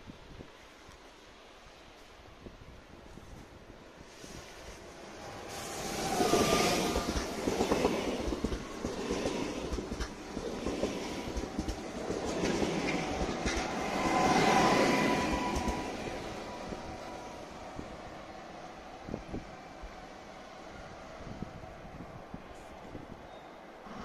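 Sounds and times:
train passing: 2.8s - 24.0s
wheels clicking over rail joints: 6.1s - 15.9s.

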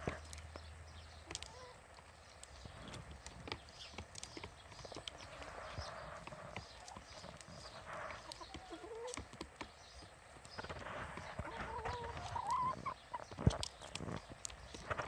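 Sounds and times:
hens clucking: 1.1s - 15.0s
beaks tapping on plastic tray: 2.9s - 11.5s.

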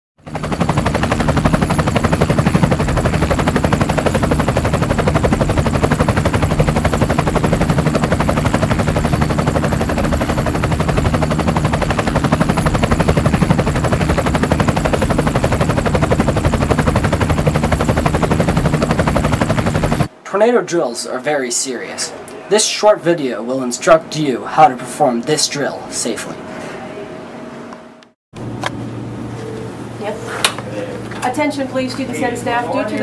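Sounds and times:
helicopter rotor beating: 0.2s - 20.2s, 20.9s - 26.6s.

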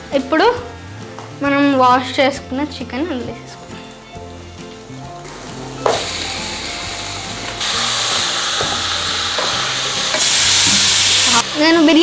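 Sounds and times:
soft background music: 0.0s - 12.0s
chicken sizzling in hot oil: 4.4s - 12.0s.

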